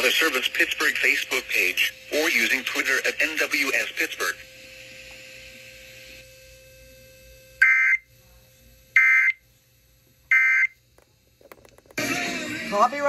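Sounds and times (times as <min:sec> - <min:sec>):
data tone bursts from speaker: 0:00.0 - 0:04.5, 0:07.6 - 0:08.1, 0:09.0 - 0:09.4, 0:10.3 - 0:10.8.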